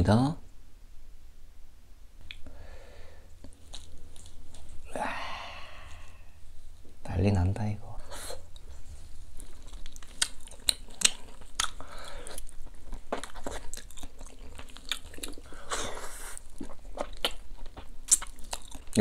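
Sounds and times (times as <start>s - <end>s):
person chewing: 3.3s - 4.9s, 8.1s - 19.0s.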